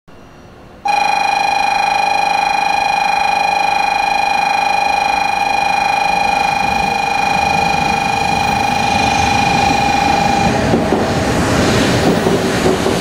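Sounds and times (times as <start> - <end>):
electronic warning buzzer: 0.9 - 10.9.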